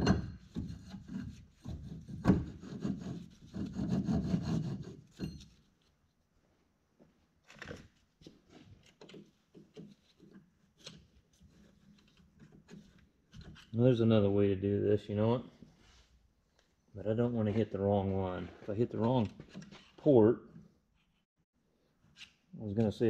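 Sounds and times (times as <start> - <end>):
faint clicks and knocks of parts: 7.0 - 13.8.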